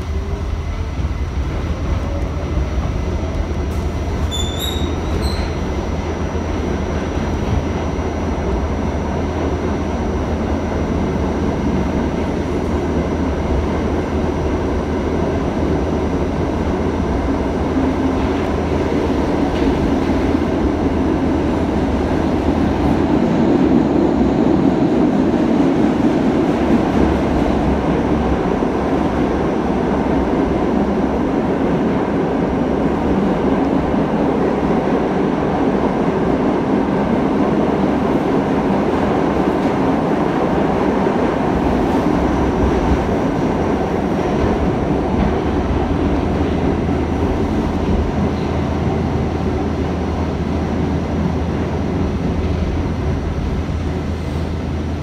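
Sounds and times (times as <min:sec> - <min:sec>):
subway train wheels rumbling on rails: 0:00.0 - 0:55.0.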